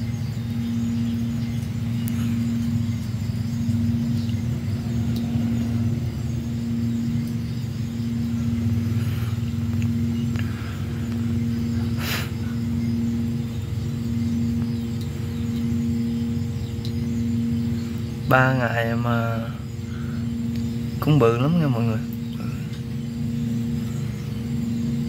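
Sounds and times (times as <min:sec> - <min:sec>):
small motor humming: 0:00.0 - 0:18.3.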